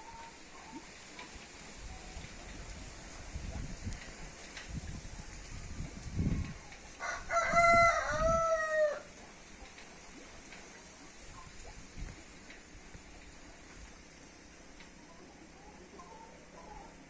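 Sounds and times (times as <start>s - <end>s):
faint background noise: 0.0s - 17.0s
rooster crowing: 7.0s - 9.1s.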